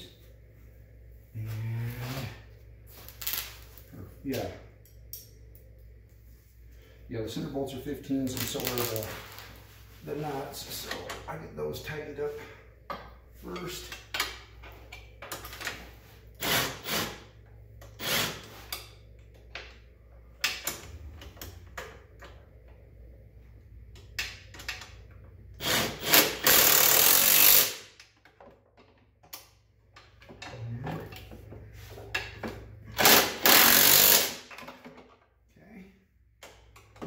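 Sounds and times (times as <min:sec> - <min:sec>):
handheld power tool running: 0:25.6 - 0:27.9, 0:33.0 - 0:34.5.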